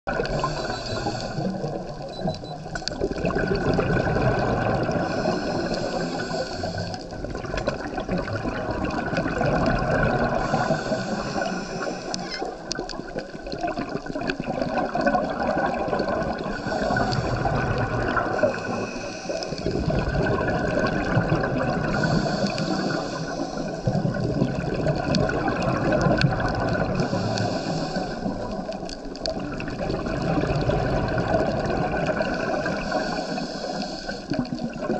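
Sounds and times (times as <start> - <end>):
exhaled bubbles gurgling: 0.1 - 34.9
diver breathing through regulator: 0.2 - 1.8, 4.8 - 7.2, 10.2 - 12.8, 16.3 - 20.1, 21.4 - 24.1, 26.6 - 28.8, 32.1 - 34.6.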